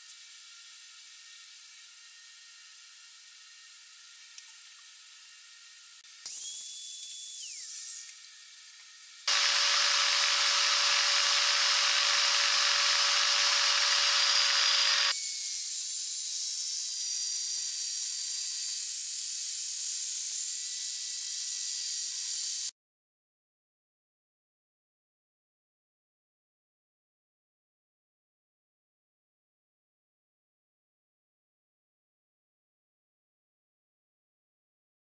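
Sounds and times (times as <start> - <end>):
angle grinder grinding metal: 9.2 - 22.7.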